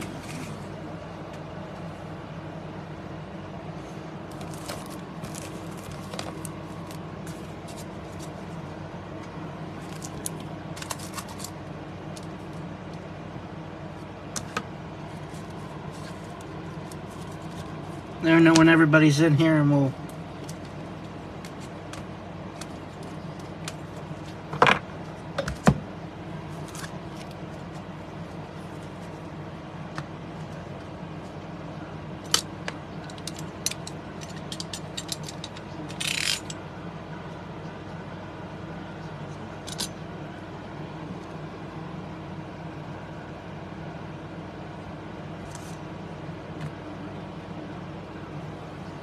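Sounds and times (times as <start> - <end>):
steady low hum: 0.0 - 49.0
cards scraping clatter: 4.3 - 8.4, 9.8 - 11.6.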